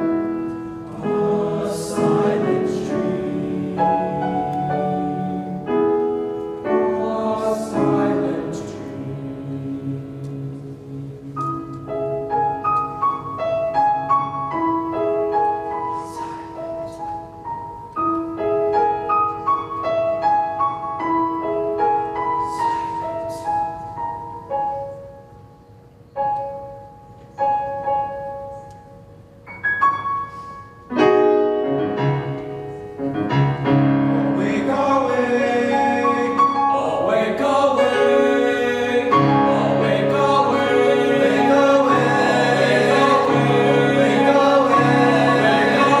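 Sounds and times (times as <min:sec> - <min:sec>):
grand piano playing: 0:00.0 - 0:46.0
boys' choir singing: 0:00.9 - 0:05.8, 0:06.6 - 0:11.6, 0:34.2 - 0:46.0.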